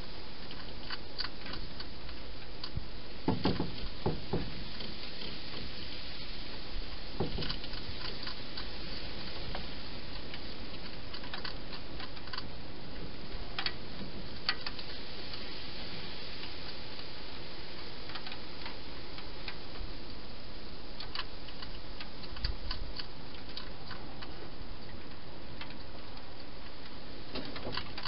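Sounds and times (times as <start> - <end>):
steady hiss: 0.0 - 28.0
hedgehog eating clicks and crunches: 0.4 - 2.8, 7.4 - 13.8, 21.0 - 28.0.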